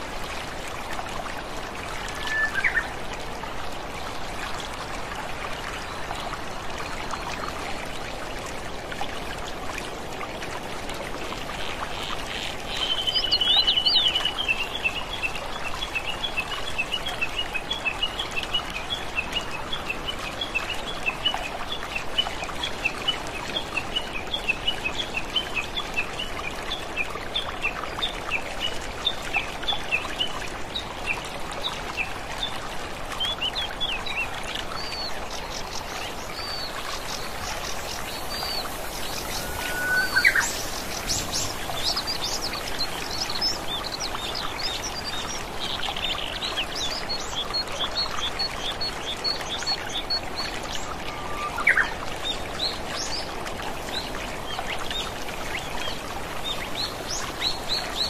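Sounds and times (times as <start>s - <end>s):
water trickling: 0.0s - 58.0s
bird chirping: 36.3s - 43.9s.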